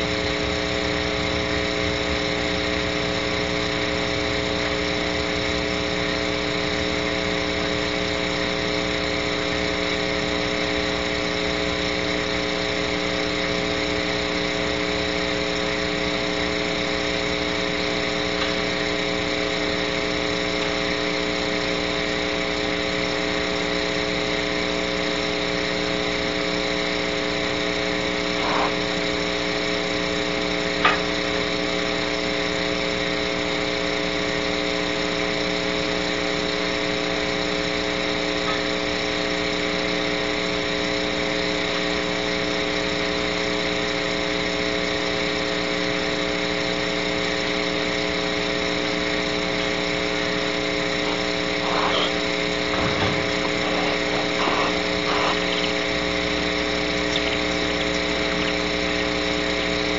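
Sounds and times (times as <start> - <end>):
steady multi-tone hum: 0.0 - 59.9
hiss: 51.0 - 55.8.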